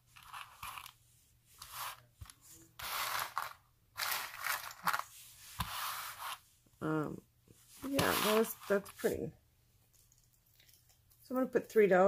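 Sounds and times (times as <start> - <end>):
beaded necklace rustling: 0.0 - 1.0, 1.6 - 6.4, 7.7 - 9.3.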